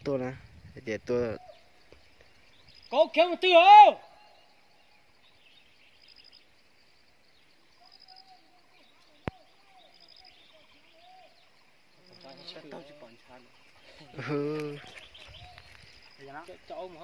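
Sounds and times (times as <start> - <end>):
lower wavering bird calls: 1.2 - 17.0
bird high pulsed call: 3.9 - 6.6, 7.3 - 12.8.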